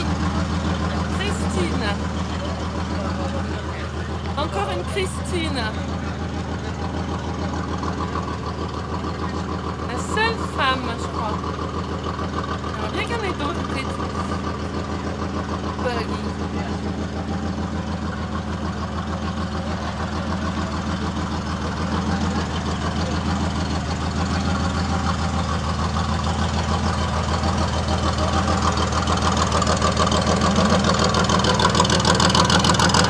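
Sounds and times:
buggy engine idling: 0.0 - 33.0.

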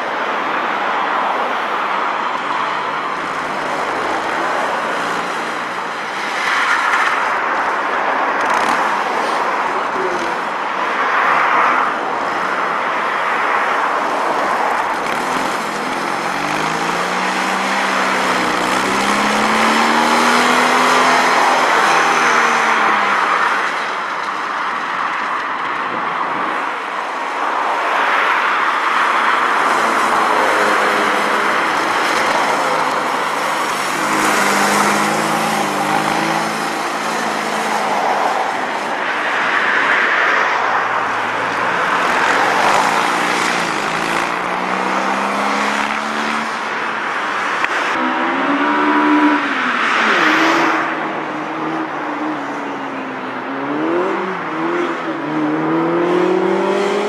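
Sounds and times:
small car engine revving: 14.7 - 23.6, 29.4 - 38.8, 41.6 - 46.8, 53.6 - 57.0
another small car running: 14.8 - 22.9, 29.6 - 37.9.

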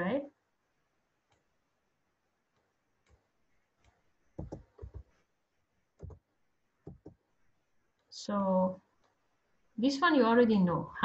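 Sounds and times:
computer mouse clicks: 1.3 - 1.5, 2.5 - 5.1, 6.0 - 6.2
keyboard clicks: 3.8 - 5.1, 6.0 - 6.2.

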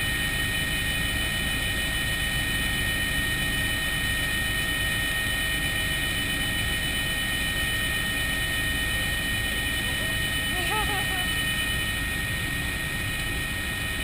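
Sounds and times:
helicopter engine and rotor drone: 0.0 - 14.0
high even whine: 4.9 - 14.0.

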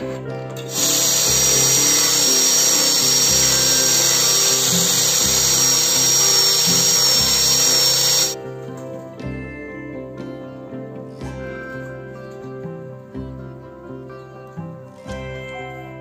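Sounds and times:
background music: 0.0 - 16.0
electric drill sanding with high whine: 0.7 - 8.4.

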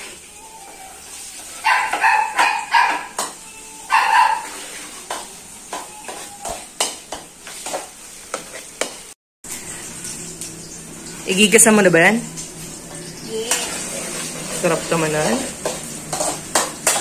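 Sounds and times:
dog barking: 1.6 - 3.2, 3.9 - 4.6
metal spatula scraping wok: 4.4 - 9.0, 12.7 - 17.0.

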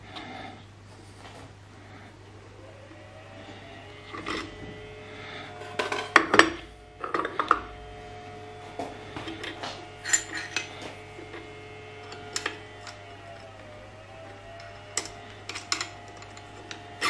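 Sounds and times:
steel parts clinking and knocking: 9.4 - 10.8, 12.1 - 13.0, 14.6 - 16.8.

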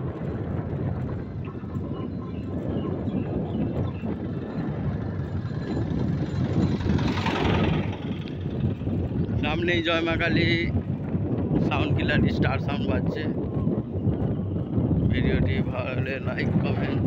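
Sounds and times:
road and engine noise: 0.0 - 17.0
wind buffeting microphone: 0.0 - 17.0
small van engine passing: 4.4 - 9.1.

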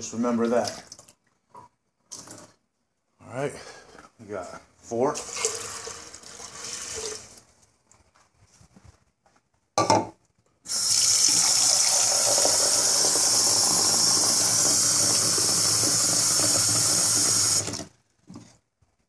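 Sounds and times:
water running from tap: 5.2 - 7.3, 10.7 - 17.9.

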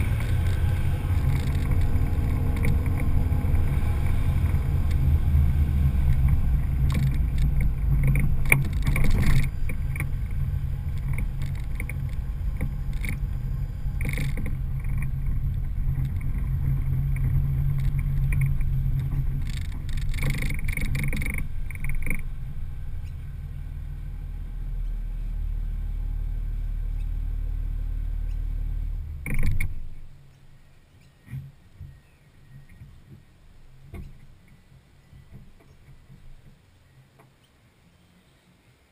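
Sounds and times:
rushes of louder noise: 0.0 - 29.8
diesel engine droning: 0.0 - 38.7.

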